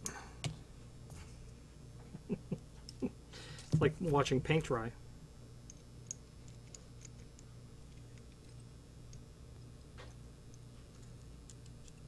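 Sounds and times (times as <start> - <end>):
low steady hum: 0.0 - 12.0
small metal clicks and ticks: 10.0 - 12.0.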